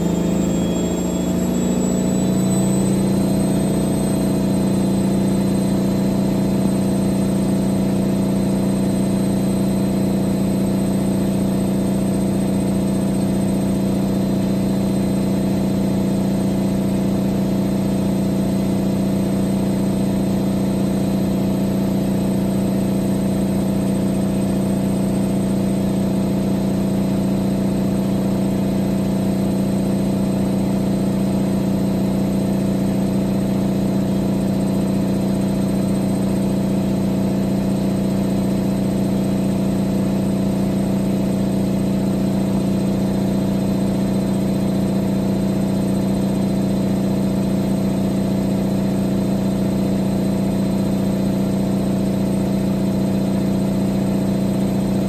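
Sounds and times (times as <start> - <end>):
washing machine humming and whining: 0.0 - 55.0.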